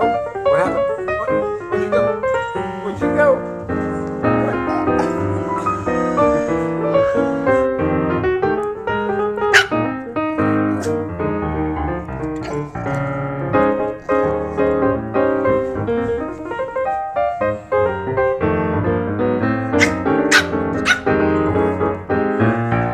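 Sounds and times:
piano music: 0.0 - 22.9
puppy yipping: 4.7 - 7.7, 9.5 - 9.8, 19.8 - 21.1.

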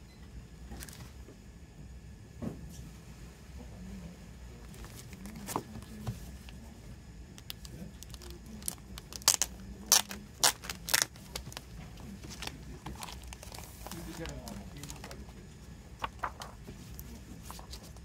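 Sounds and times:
plastic wrapping crinkling: 4.6 - 6.0, 7.4 - 15.2, 16.0 - 17.9.

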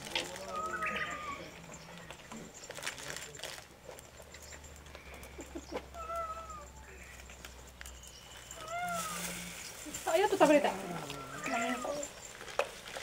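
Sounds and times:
cat meowing: 5.9 - 6.9, 8.6 - 9.4, 11.0 - 12.1.

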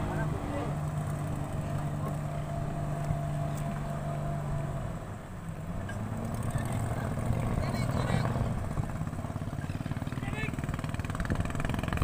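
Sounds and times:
boat engine running: 0.0 - 12.0.

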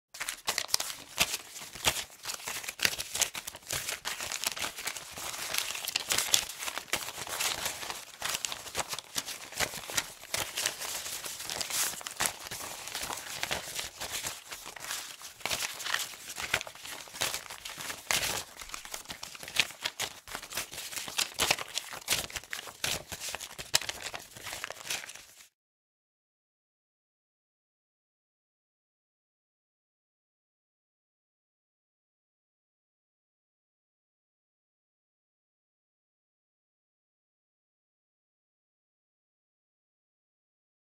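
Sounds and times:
paper money rustling: 0.2 - 25.5.

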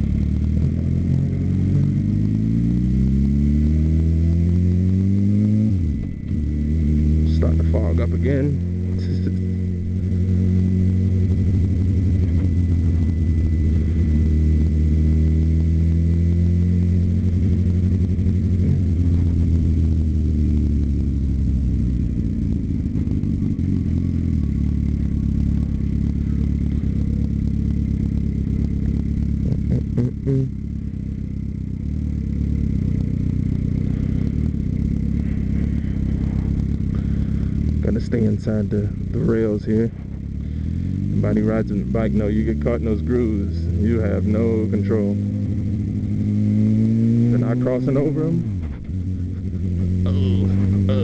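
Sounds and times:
motorcycle engine running: 0.0 - 51.0.

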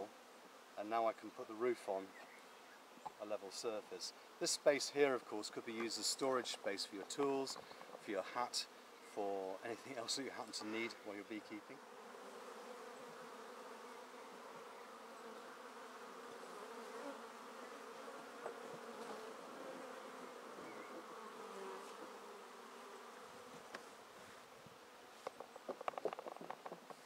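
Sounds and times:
bees buzzing: 7.6 - 27.0.

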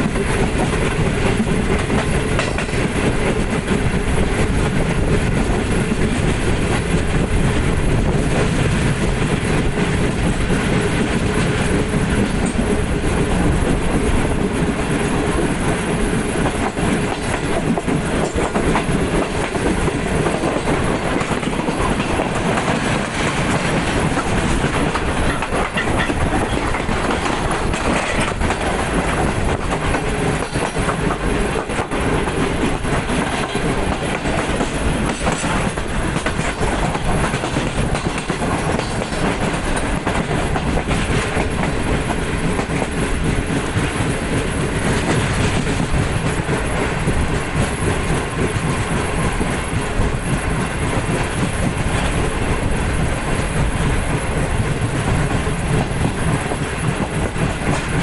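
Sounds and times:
steady rushing noise: 0.0 - 58.0
train wheels clattering over rail joints: 0.0 - 58.0.

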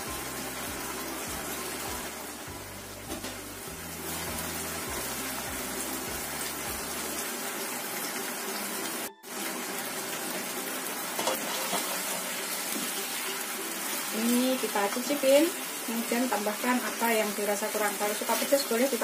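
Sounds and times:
sauce bubbling in a frying pan: 0.0 - 19.0.

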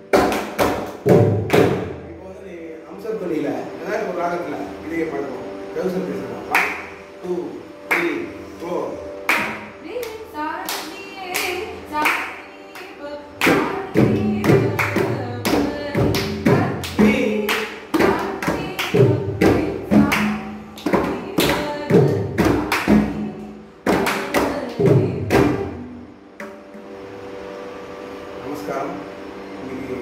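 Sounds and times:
tuned hand drum rhythm: 0.0 - 2.1, 13.4 - 27.1.

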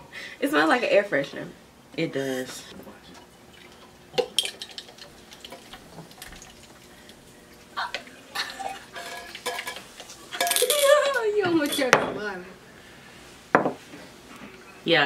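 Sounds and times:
drink pouring into cup: 2.8 - 11.0
drinkware clinking and tapping: 3.1 - 6.5, 7.9 - 12.2, 13.6 - 13.8.

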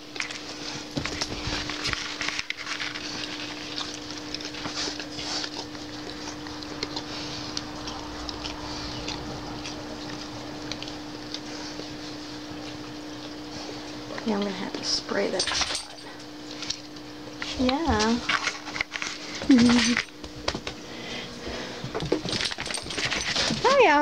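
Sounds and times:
steady low hum: 0.0 - 24.0
dog licking wet smacking: 3.5 - 14.5.

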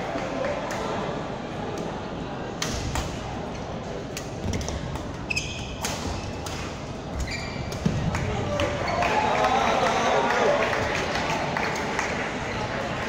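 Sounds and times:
shoe squeaks on court: 5.2 - 6.4, 7.2 - 7.7.

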